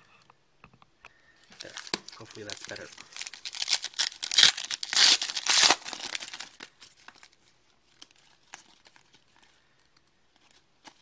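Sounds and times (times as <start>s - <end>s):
wrapper tearing and crinkling: 1.5s - 9.4s.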